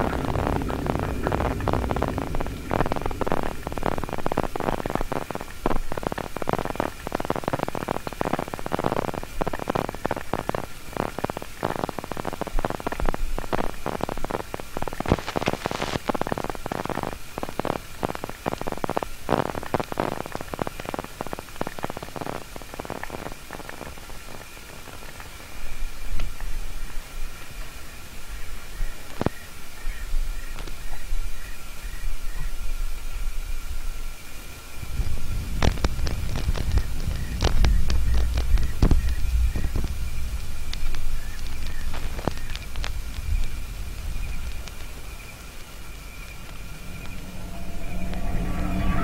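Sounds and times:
crackling and rumbling noise: 0.0s - 49.0s
faint high tone: 46.0s - 49.0s.

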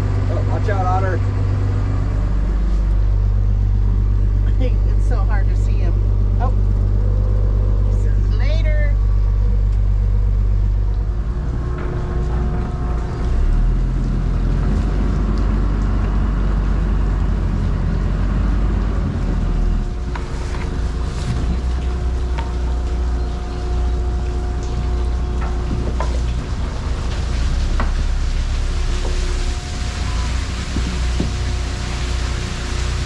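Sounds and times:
boat engine rumbling: 0.0s - 33.0s
faint steady whine: 0.0s - 33.0s.

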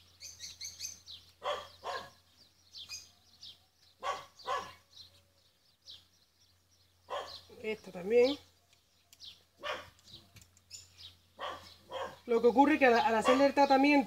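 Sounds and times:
dog barking: 1.4s - 2.2s, 4.0s - 4.8s, 7.1s - 7.4s, 9.6s - 10.0s, 11.4s - 12.2s, 13.0s - 13.6s.

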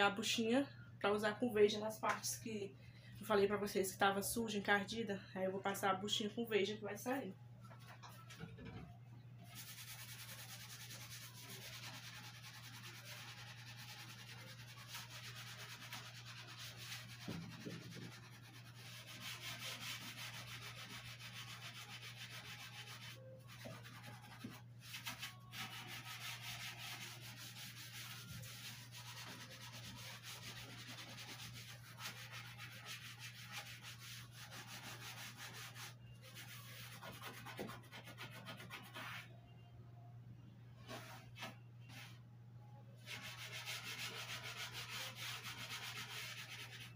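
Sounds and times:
sponge scrubbing a shelf: 9.5s - 39.3s, 43.0s - 46.9s.

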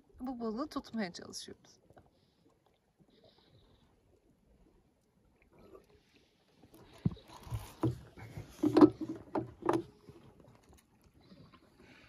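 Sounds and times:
knocks and clunks on boat: 6.7s - 10.7s.

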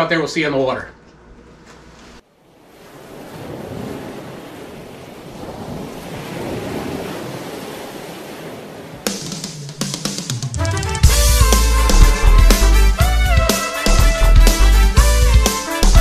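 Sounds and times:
water rushing and wake splashing: 2.3s - 10.5s
music with drums: 9.1s - 16.0s.

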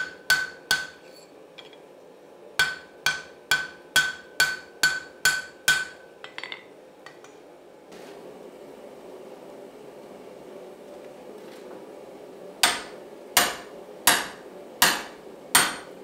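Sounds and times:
hammer striking anvil: 0.0s - 1.0s, 2.6s - 6.6s, 12.6s - 15.9s.

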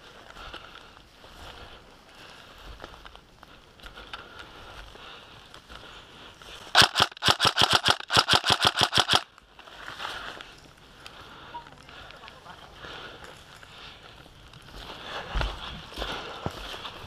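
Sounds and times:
airsoft rifle shots: 6.7s - 9.3s.

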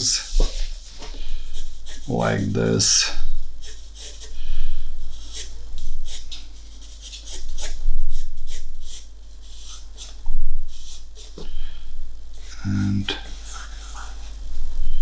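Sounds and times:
low steady hum: 0.0s - 15.0s
pencil sketching on paper: 1.4s - 4.4s, 5.1s - 11.4s, 12.4s - 14.4s.

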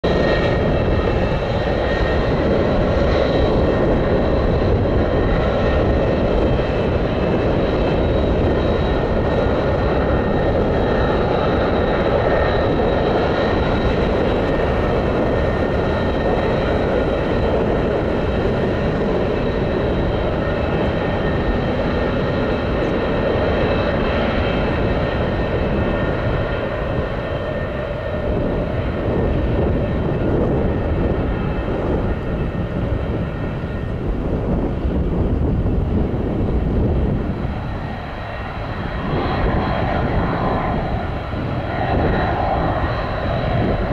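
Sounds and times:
jet engines running low power: 0.0s - 43.9s.

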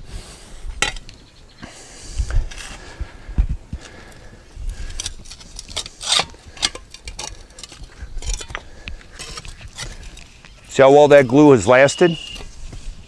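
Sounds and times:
spade scraping against stones: 4.9s - 10.3s
spade digging into soil: 5.0s - 10.0s.

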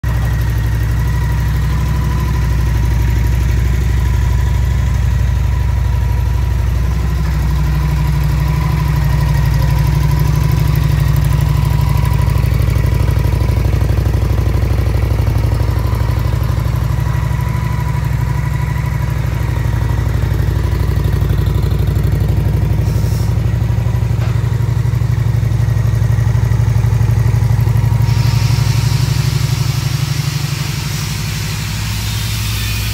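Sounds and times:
motorcycle engine idling: 0.0s - 32.9s.

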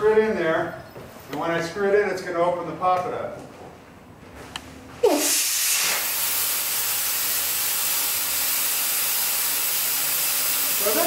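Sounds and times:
air hissing out of a valve: 5.0s - 11.0s.

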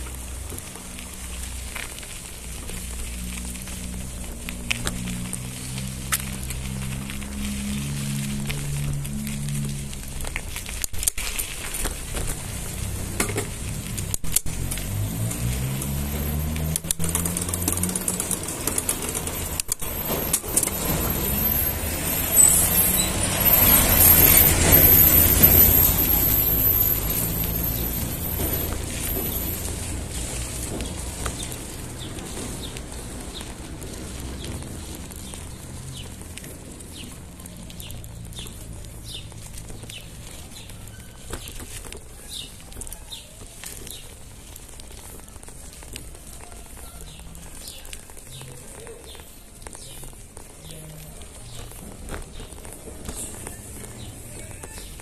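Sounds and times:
bike rattling over paving: 0.0s - 55.0s
broad rush of noise: 0.0s - 55.0s
vehicle engine: 0.0s - 55.0s.

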